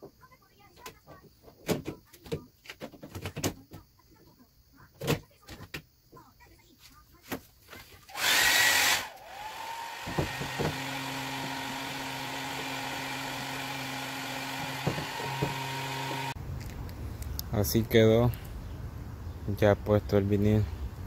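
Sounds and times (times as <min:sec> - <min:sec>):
hot-air blower humming: 0:08.1 - 0:16.4.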